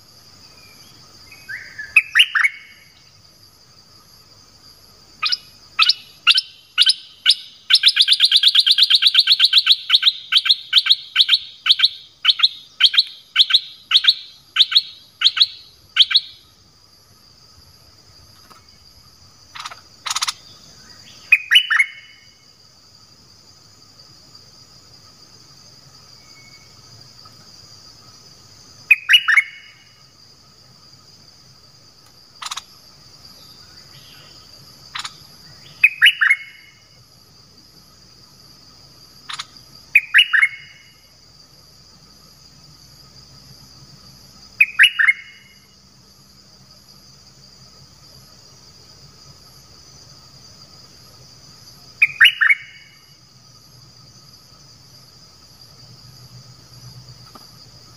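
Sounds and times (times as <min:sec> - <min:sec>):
bird singing trill: 0:00.4 - 0:03.2, 0:05.2 - 0:16.6, 0:19.6 - 0:22.4, 0:26.2 - 0:26.8, 0:28.8 - 0:30.0, 0:33.3 - 0:36.9, 0:39.3 - 0:41.0, 0:44.5 - 0:45.8, 0:52.0 - 0:53.1.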